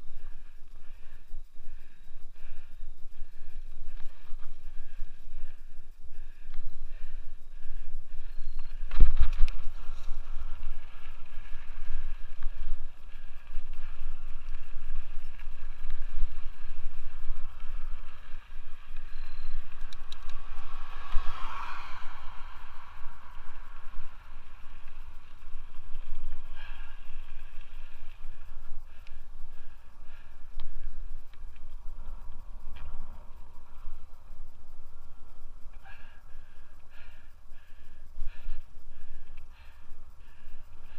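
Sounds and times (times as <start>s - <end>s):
bike tyres rolling on trail: 0.0s - 40.9s
rush of noise: 0.0s - 40.9s.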